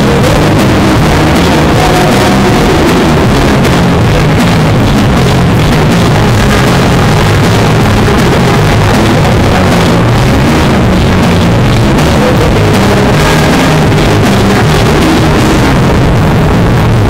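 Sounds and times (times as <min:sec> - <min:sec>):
distorted live band music: 0:00.0 - 0:17.0.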